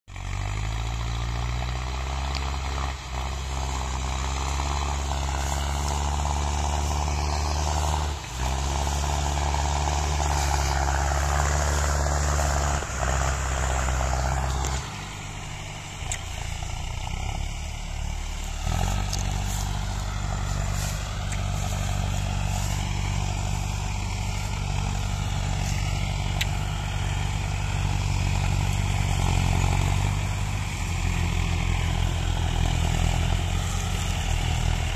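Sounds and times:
diesel tractor engine under load: 0:00.0 - 0:34.9.

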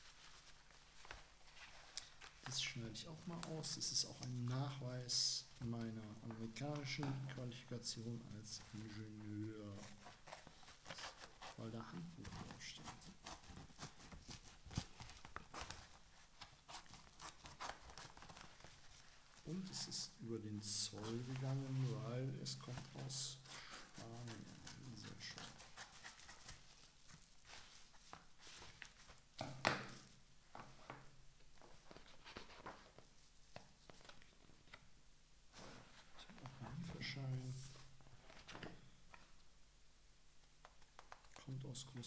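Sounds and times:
paper rustling: 0:00.0 - 0:04.7, 0:08.4 - 0:20.0, 0:20.6 - 0:34.8
paper envelope rustling: 0:08.5 - 0:19.9, 0:31.5 - 0:34.8.

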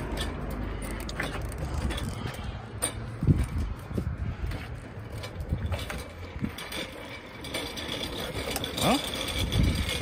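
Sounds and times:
cart rattling over concrete: 0:00.0 - 0:10.0
cart wheel squeaks: 0:00.0 - 0:10.0.

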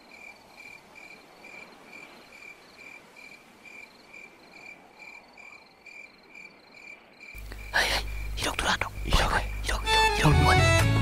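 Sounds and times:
cricket chirping: 0:00.0 - 0:10.3
faint night hiss: 0:00.0 - 0:11.0.

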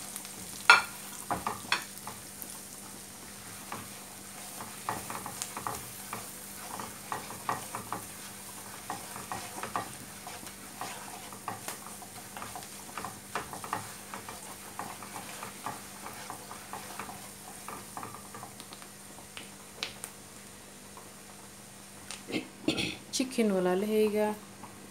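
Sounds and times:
onions sizzling in a pan: 0:00.0 - 0:22.3
spatula scraping and tapping pan: 0:00.5 - 0:02.5, 0:03.4 - 0:20.0.

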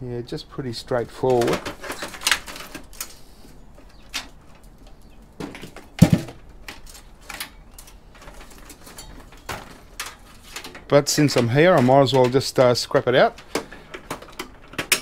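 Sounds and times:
computer case clicks and knocks: 0:05.4 - 0:06.4, 0:13.6 - 0:15.0.

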